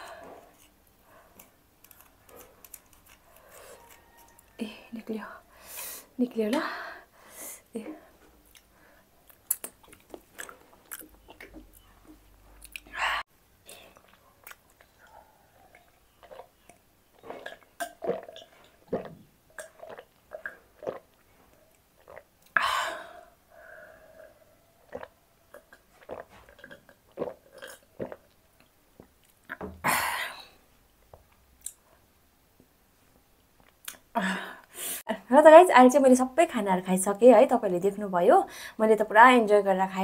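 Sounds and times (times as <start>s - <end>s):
wet mouth clicks: 9.3s - 13.0s, 33.6s - 34.1s
person gulping and swallowing: 9.3s - 15.0s, 15.7s - 23.1s, 24.2s - 28.4s
breathy sounds: 22.6s - 24.7s.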